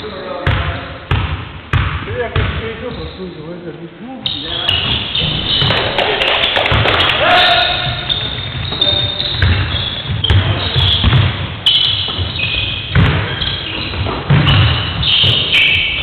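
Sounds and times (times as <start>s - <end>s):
shoes squeaking: 4.2s - 16.0s
basketball thudding on wooden floor: 13.9s - 15.5s.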